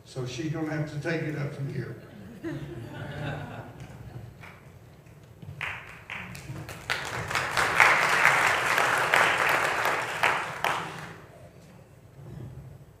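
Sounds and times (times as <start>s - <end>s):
congregation applauding: 5.6s - 11.4s.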